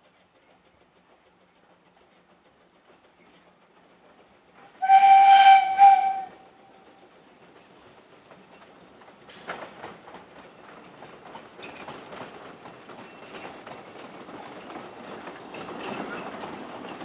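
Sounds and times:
steam whistle blast: 4.8s - 6.5s.

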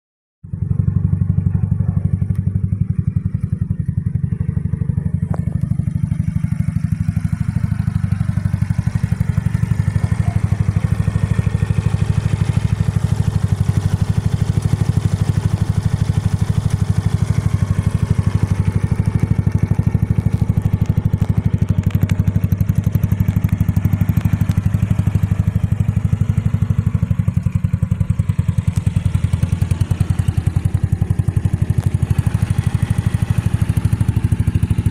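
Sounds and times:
scooter engine idling: 0.5s - 34.9s.

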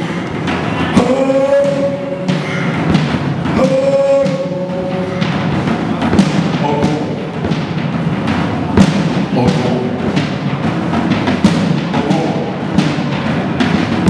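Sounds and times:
drum hits: 0.0s - 14.0s.

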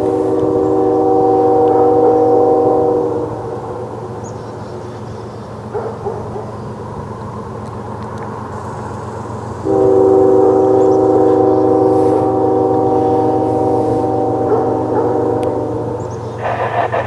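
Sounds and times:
locomotive air horn chord: 0.0s - 4.2s, 9.6s - 16.9s
train rumbling: 0.0s - 17.0s.

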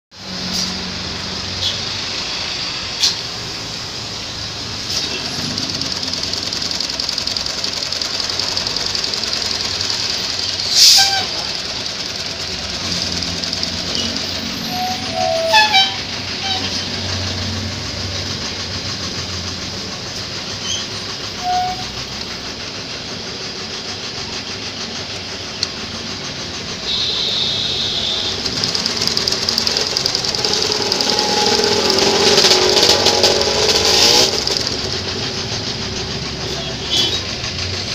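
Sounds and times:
sewing machine clatter: 3.8s - 37.9s
sharp clicks: 4.8s - 14.8s, 25.2s - 25.9s, 27.9s - 36.4s.

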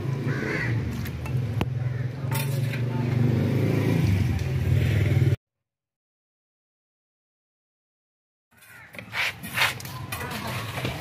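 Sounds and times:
metal ladle clanking pot: 2.3s - 2.9s.

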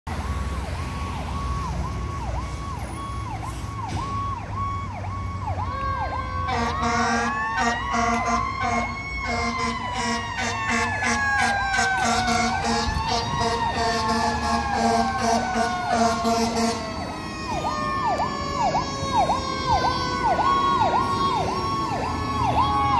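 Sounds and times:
siren wailing: 0.2s - 22.9s
siren yelping: 0.3s - 22.9s
low horn blasts: 6.5s - 19.2s.

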